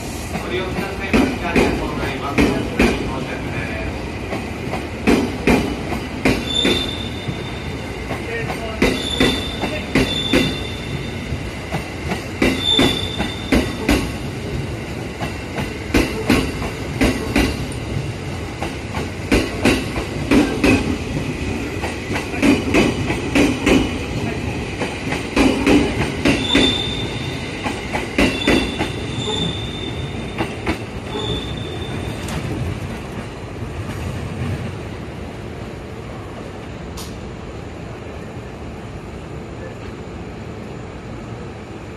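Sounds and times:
high wheel squeal: 0:06.4 - 0:07.7, 0:26.4 - 0:27.3, 0:28.3 - 0:30.3, 0:31.1 - 0:32.3
train wheels clattering over rail joints: 0:08.1 - 0:24.0, 0:24.8 - 0:26.9, 0:27.6 - 0:29.5.

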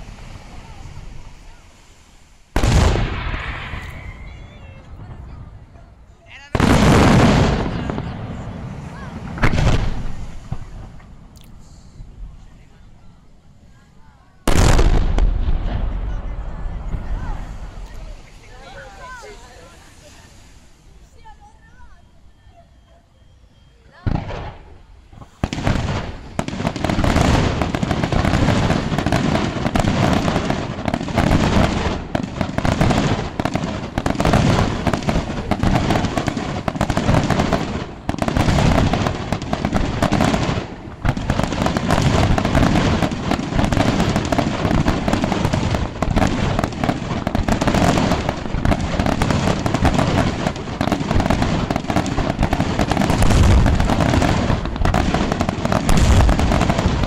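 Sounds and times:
fireworks bursting and launching: 0:00.0 - 0:22.6, 0:23.8 - 0:57.0.

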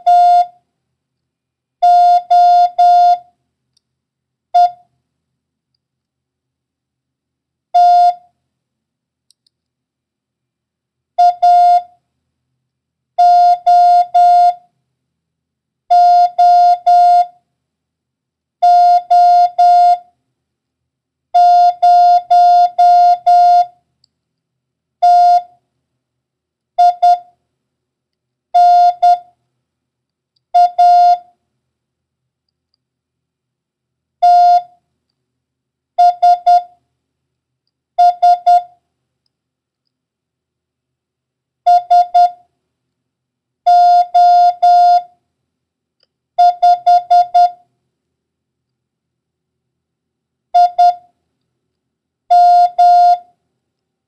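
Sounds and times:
morse code tone: 0:00.0 - 0:00.5, 0:01.8 - 0:03.2, 0:21.4 - 0:23.7, 0:28.6 - 0:29.2, 0:36.0 - 0:36.7, 0:38.0 - 0:38.7, 0:41.7 - 0:42.4, 0:43.7 - 0:45.1, 0:46.4 - 0:47.6, 0:50.6 - 0:51.0, 0:52.3 - 0:53.3.

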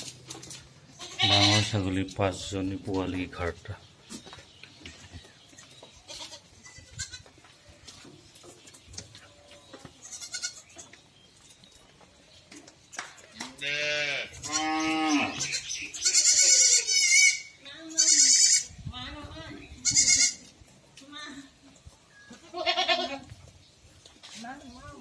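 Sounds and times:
goats bleating: 0:00.9 - 0:02.0, 0:06.0 - 0:07.4, 0:10.0 - 0:10.9, 0:13.6 - 0:18.7, 0:19.8 - 0:20.5, 0:22.3 - 0:23.3.

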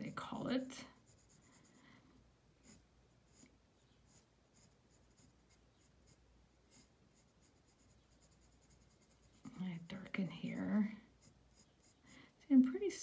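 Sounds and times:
pencil scratching on paper: 0:00.9 - 0:01.8, 0:02.6 - 0:03.5, 0:04.1 - 0:12.2.

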